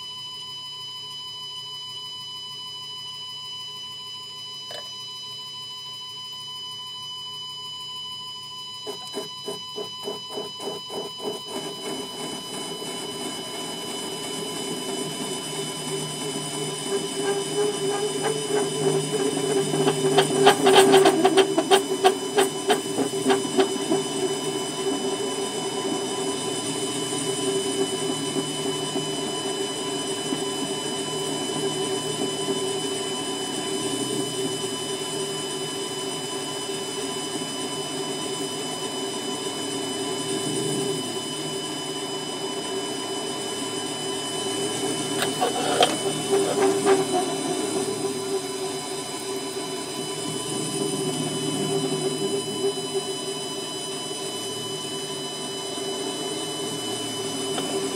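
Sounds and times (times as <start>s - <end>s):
lathe motor whine: 0.0s - 57.9s
tool cutting spinning metal bar: 8.8s - 33.1s, 44.2s - 52.9s, 57.0s - 57.9s.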